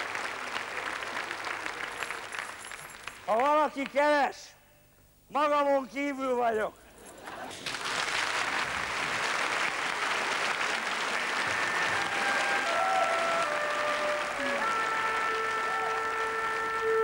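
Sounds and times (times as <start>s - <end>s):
audience applauding: 0.0s - 4.0s, 7.5s - 17.0s
orchestra held wind notes: 11.4s - 17.0s.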